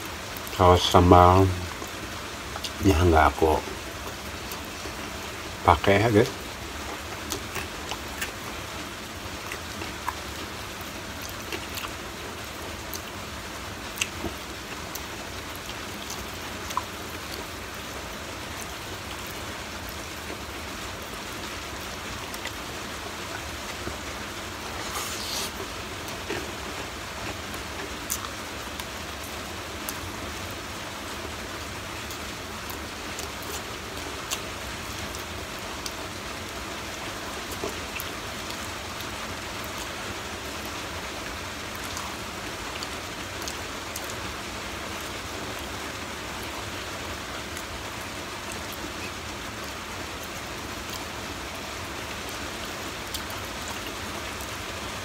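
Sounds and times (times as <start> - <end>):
steady hiss: 0.0 - 55.0
crackle: 6.2 - 55.0
chewing and tearing fried chicken: 6.8 - 17.7, 22.2 - 30.0.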